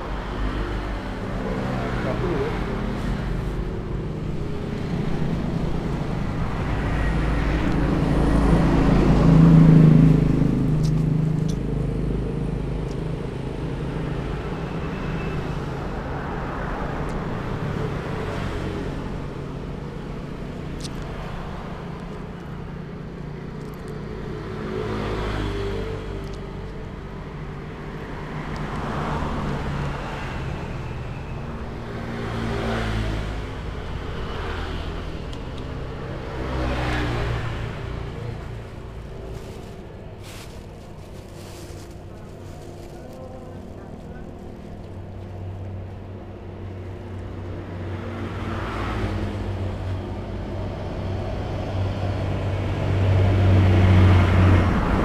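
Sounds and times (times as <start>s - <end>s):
vehicle passing by: 0.0s - 12.2s, 50.8s - 55.0s
road traffic engines: 0.0s - 55.0s.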